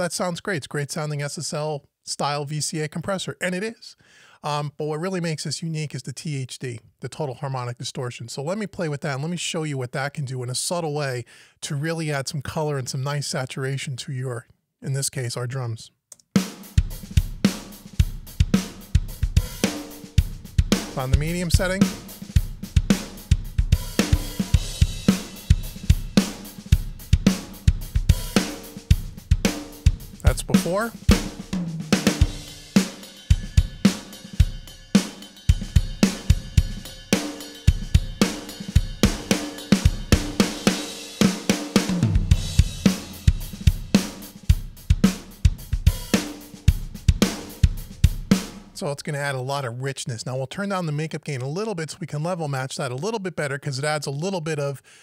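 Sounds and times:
drum kit groove: 16.2s - 49.0s.

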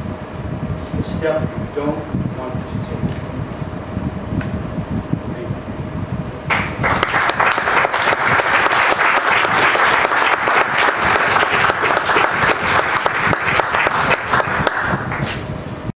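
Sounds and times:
audience applauding: 6.5s - 15.4s.

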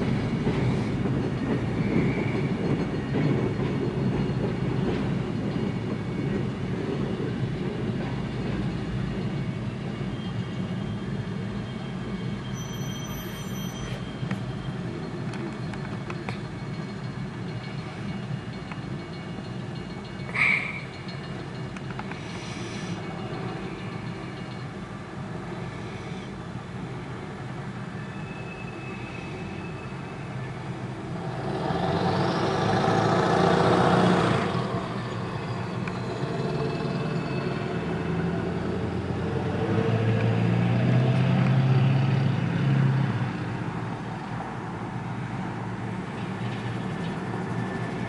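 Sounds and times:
freight train cars rolling: 0.0s - 48.0s
road vehicles passing: 13.2s - 48.0s.

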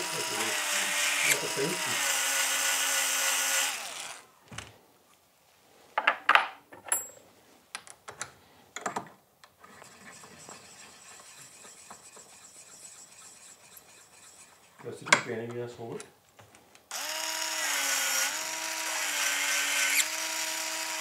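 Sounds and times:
small electric motor running: 0.0s - 4.2s, 9.9s - 14.6s, 16.9s - 21.0s.

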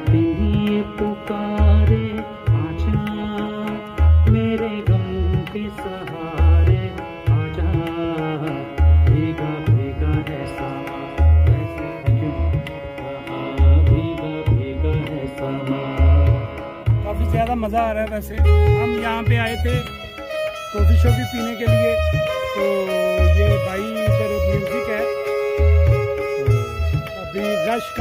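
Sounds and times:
electronic keyboard: 0.0s - 28.0s
man singing: 0.0s - 28.0s
tabla-style drum rhythm: 0.0s - 28.0s
deep bass beat: 16.2s - 25.0s.

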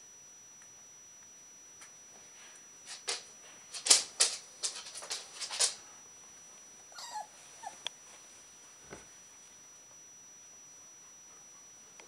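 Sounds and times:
puppy whimpering: 6.9s - 7.8s.

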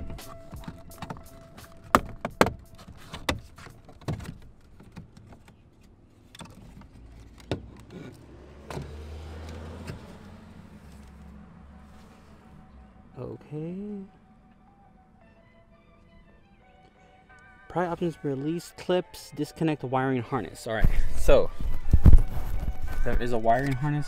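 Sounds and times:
plastic knocks and handling: 0.0s - 5.6s.

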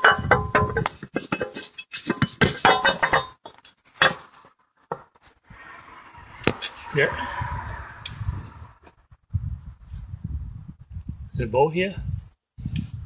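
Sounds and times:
metal tools clinking on car parts: 0.0s - 4.4s.

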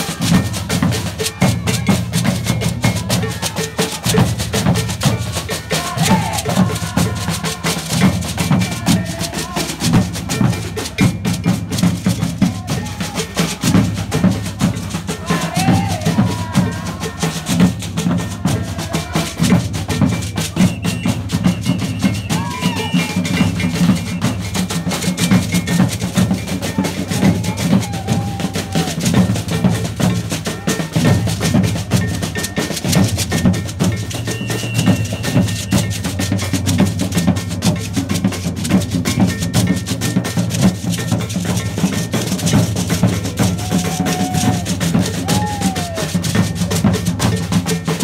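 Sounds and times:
voices: 5.2s - 10.9s, 14.6s - 24.3s, 26.3s - 31.3s, 43.3s - 47.9s.

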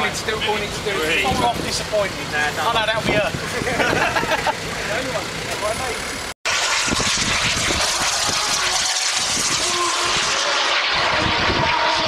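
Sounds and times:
aircraft engine rushing: 3.3s - 12.0s.

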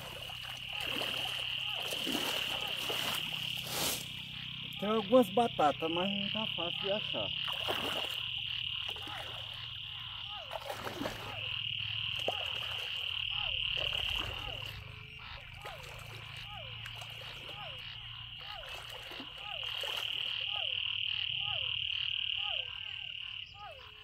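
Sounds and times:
water sloshing around legs: 0.0s - 5.6s, 6.4s - 21.8s
high-pitched frog chorus: 0.0s - 24.0s
frog call falling in pitch: 4.2s - 24.0s.

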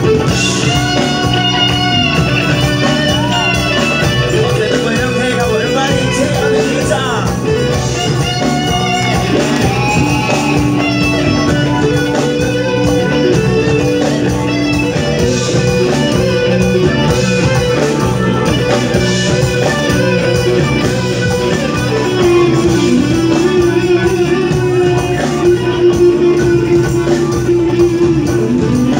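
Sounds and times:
drums: 0.0s - 28.9s
electric guitars: 0.0s - 28.9s.

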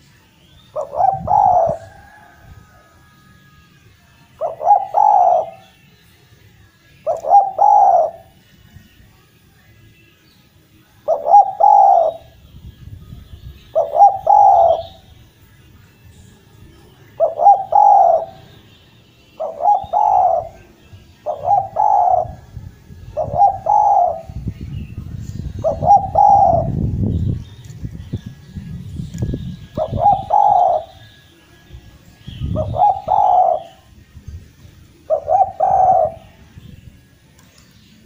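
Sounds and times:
small birds chirping: 0.0s - 2.0s, 3.8s - 38.0s
dove cooing: 0.7s - 3.0s, 4.4s - 5.7s, 7.0s - 8.4s, 11.0s - 12.4s, 13.7s - 15.1s, 17.1s - 18.5s, 19.4s - 24.4s, 25.4s - 26.8s, 29.6s - 31.1s, 32.4s - 33.9s, 35.0s - 36.4s.

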